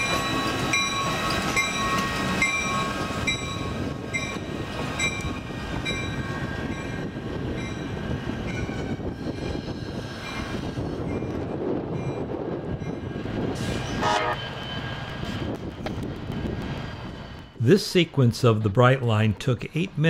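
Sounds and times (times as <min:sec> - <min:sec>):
diesel locomotive engine running: 0:00.0 - 0:20.0.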